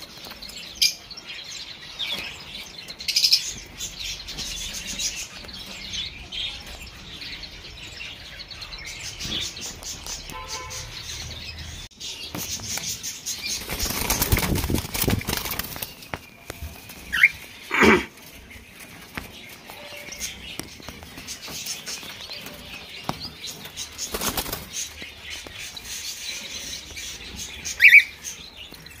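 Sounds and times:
birds flapping wings: 13.4 - 17.3, 24.0 - 24.9
cockatiels chirping: 17.1 - 17.4, 25.4 - 28.4.

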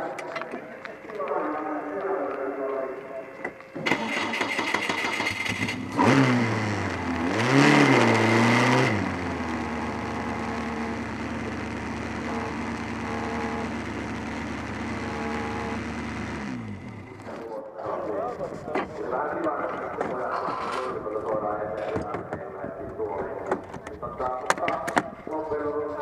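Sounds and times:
race car engine revving: 3.8 - 17.4
race car engine idling: 5.2 - 17.3.

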